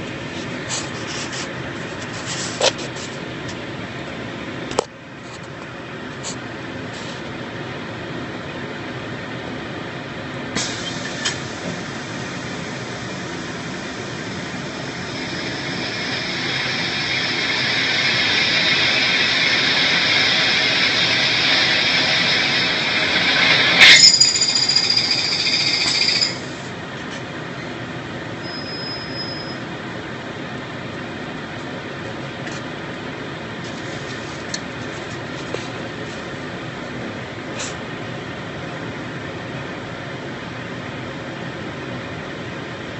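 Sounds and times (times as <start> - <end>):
high squealing hiss: 10.6 - 26.6
steady machine noise: 11.4 - 26.8
high ringing tone: 14.5 - 26.7, 28.4 - 29.6.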